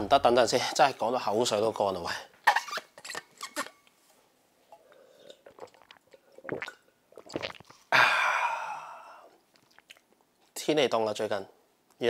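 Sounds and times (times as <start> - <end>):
person sipping and slurping: 4.8 - 7.9, 8.9 - 10.1
person gulping: 4.8 - 10.2
person sighing ahh: 7.9 - 9.4.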